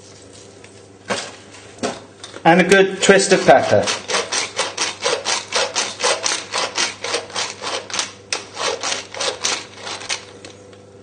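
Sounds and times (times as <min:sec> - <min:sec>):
pepper mill grinding: 0:03.4 - 0:10.5.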